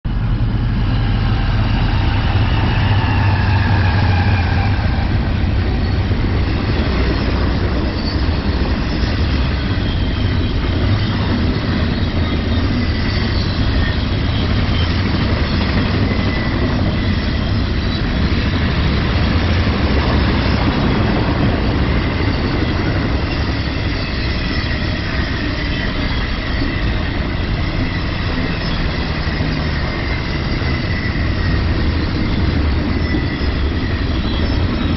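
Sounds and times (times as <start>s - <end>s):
diesel locomotives: 0.0s - 34.9s
freight cars rumbling: 0.0s - 34.9s
high wheel squeals: 0.3s - 34.9s.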